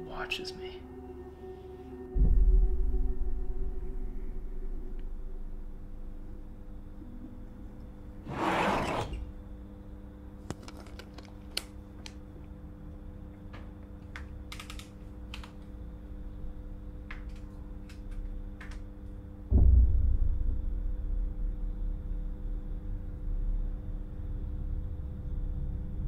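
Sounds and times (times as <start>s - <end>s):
steady low drone: 0.0s - 8.3s, 15.7s - 26.0s
deep low boom: 2.2s - 5.8s, 19.5s - 26.0s.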